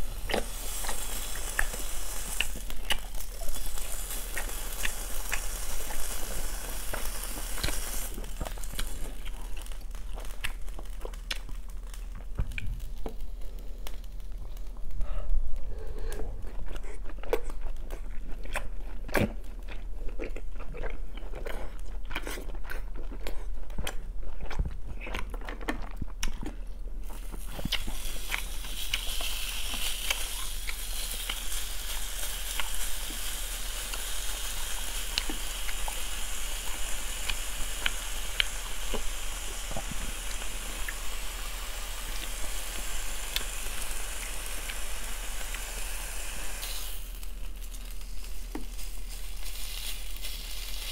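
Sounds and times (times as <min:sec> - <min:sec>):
beef sizzling on grill pan: 0:00.0 - 0:11.0, 0:27.2 - 0:50.9
chewing and wet mouth sounds: 0:00.2 - 0:31.6, 0:32.3 - 0:39.1.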